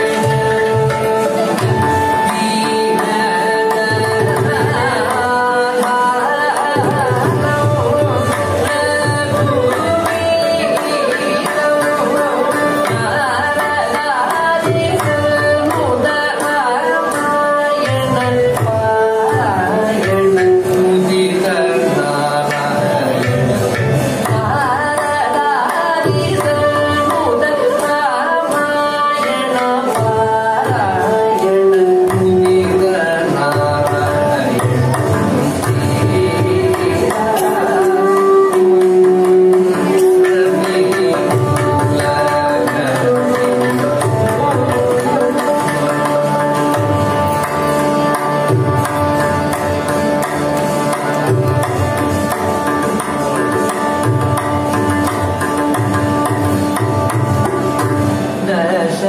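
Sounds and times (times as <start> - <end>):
hand drum and clay pot rhythm: 0.0 - 59.0
violin: 0.0 - 59.0
man singing: 18.7 - 24.0, 30.2 - 46.6, 58.4 - 59.0.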